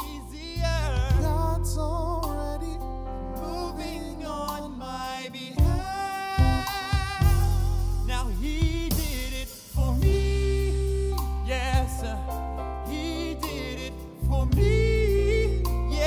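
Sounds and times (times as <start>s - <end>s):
drums: 0.0s - 0.3s, 1.0s - 1.6s, 5.6s - 12.4s, 13.4s - 16.0s
male singer holding notes: 0.0s - 16.0s
sustained low bass notes: 0.0s - 16.0s.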